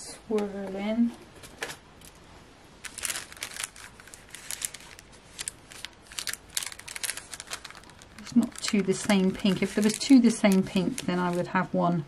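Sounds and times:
plastic packet crinkling: 2.8s - 11.7s.

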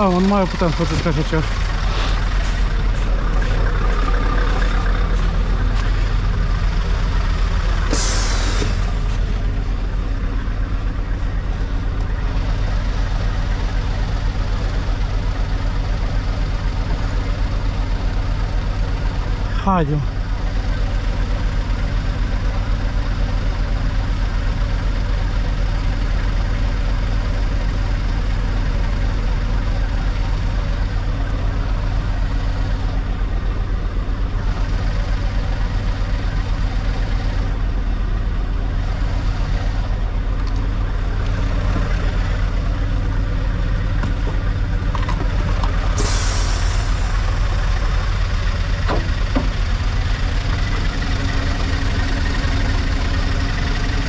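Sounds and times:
diesel truck engine under load: 0.0s - 54.0s
air hiss: 7.9s - 8.9s, 46.0s - 47.2s.

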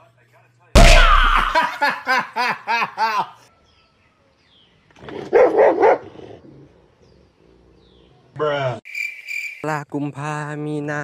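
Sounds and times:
dog barking: 5.2s - 6.2s.

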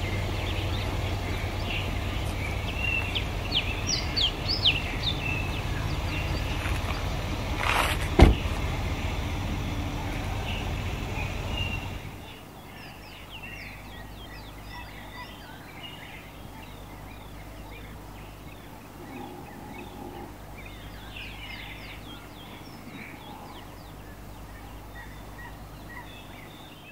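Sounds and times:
steady low hum: 0.0s - 26.8s
birds chirping: 0.0s - 26.9s
sharp knock: 8.2s - 8.5s.

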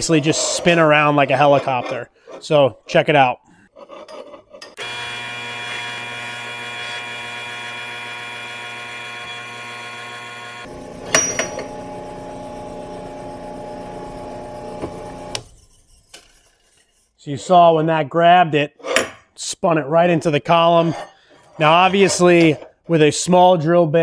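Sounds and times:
drill press motor humming: 4.8s - 15.4s
drill bit cutting metal: 4.8s - 15.5s
workpiece clanking against column: 11.1s - 11.7s.

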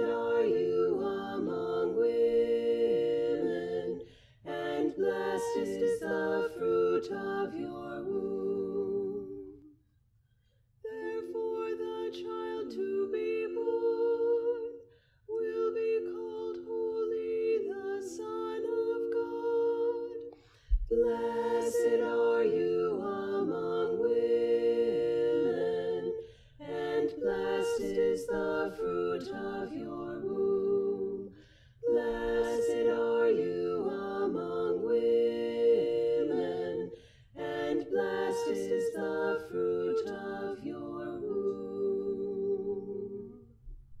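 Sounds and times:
woman singing layered harmony: 0.0s - 9.6s, 10.9s - 43.4s
singer breathing: 37.0s - 37.4s.

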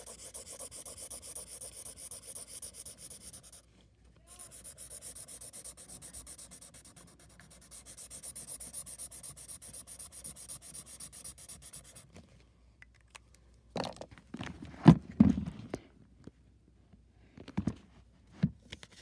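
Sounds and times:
marker scribbling on paper: 0.0s - 3.7s, 4.3s - 12.1s.

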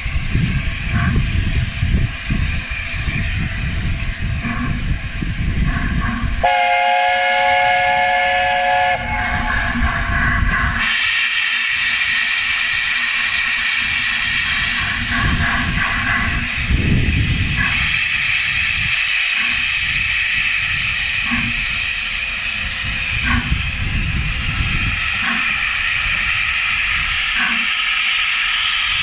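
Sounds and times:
loud steam hiss: 0.0s - 29.0s
steam locomotive chime whistle: 6.4s - 9.7s.

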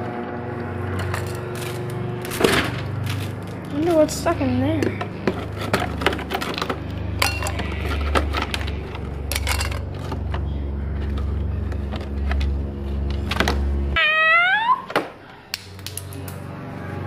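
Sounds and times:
steady low hum: 0.0s - 14.5s
frozen packages knocking and clinking: 1.0s - 10.4s.

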